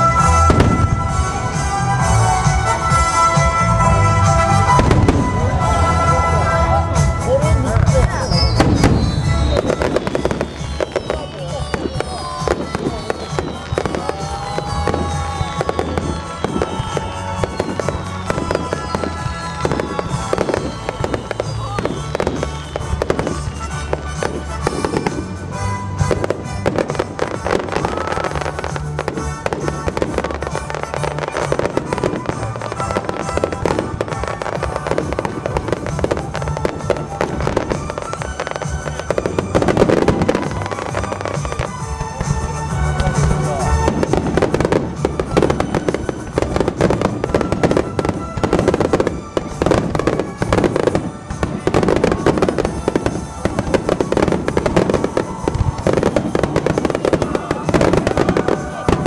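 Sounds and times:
fireworks bursting and crackling: 0.0 - 59.0
music: 0.0 - 59.0
falling firework whistles: 8.2 - 25.4, 43.2 - 59.0.

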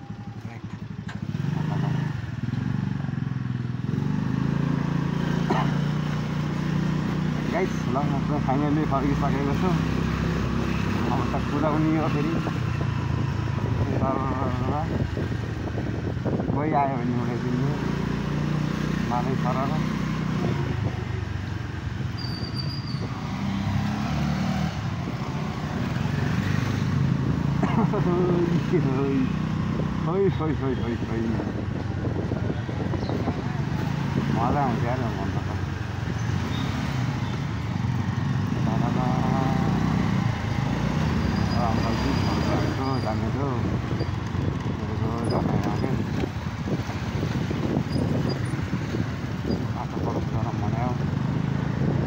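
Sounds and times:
motorcycle engine running: 0.0 - 24.0
road and wind noise: 0.0 - 52.0.

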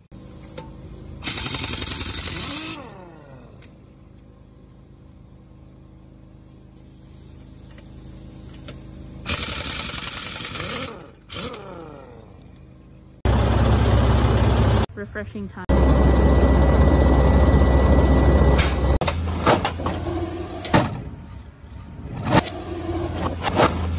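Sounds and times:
impact wrench rattling lug nuts: 1.2 - 2.9, 9.3 - 12.3
steady low hum: 10.9 - 23.9.

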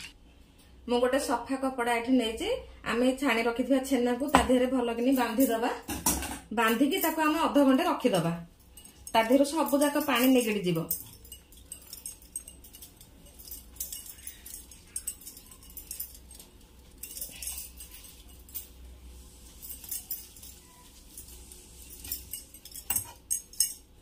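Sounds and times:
clinks and taps on steel plate: 22.0 - 23.9.

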